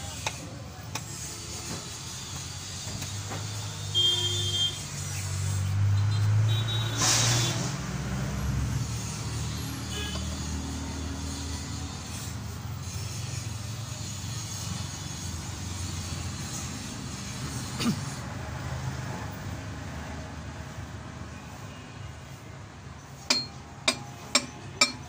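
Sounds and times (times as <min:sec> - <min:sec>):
vehicle engine drone: 0:00.0 - 0:21.9
metal scrape: 0:04.9 - 0:18.2.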